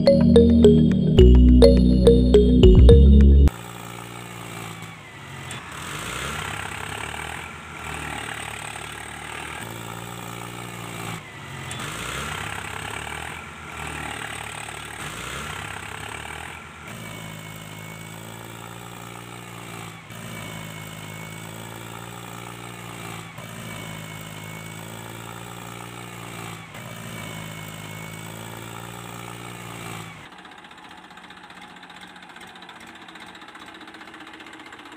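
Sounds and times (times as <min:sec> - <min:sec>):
tractor engine chugging: 0:30.4 - 0:34.9.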